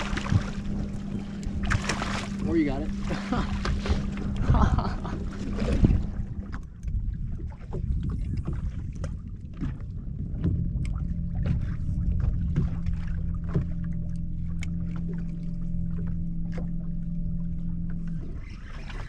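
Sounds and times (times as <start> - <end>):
steady low hum: 0.0 - 19.0
water lapping against boat hull: 0.0 - 19.0
wind rumble on microphone: 0.0 - 19.0.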